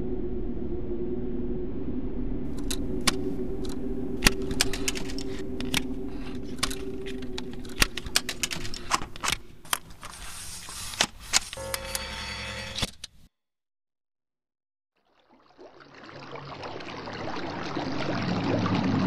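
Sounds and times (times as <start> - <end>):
steady low hum: 0.0 - 12.8
mechanism clicking and rattling: 2.5 - 11.6.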